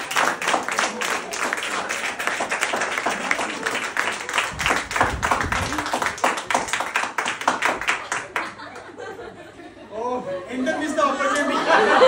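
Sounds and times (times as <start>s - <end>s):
people applauding: 0.0s - 9.0s
low rumble: 4.5s - 6.0s.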